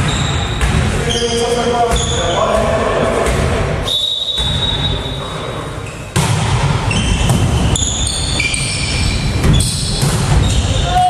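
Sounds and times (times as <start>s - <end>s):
sneakers squeaking: 0.0s - 11.0s
volleyball being struck: 4.3s - 4.9s, 6.1s - 10.6s.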